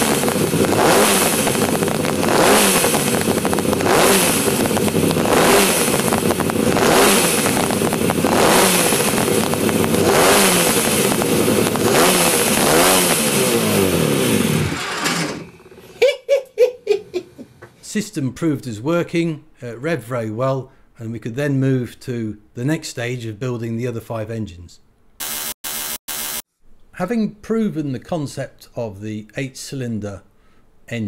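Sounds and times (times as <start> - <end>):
two-stroke engine revving: 0.0 - 16.0.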